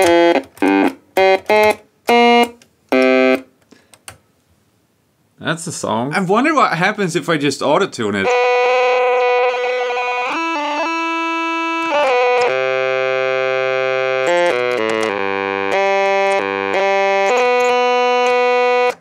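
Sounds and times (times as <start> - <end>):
toy electronic organ chords: 0.0 - 3.5, 8.2 - 19.0
low bass notes: 8.2 - 19.0.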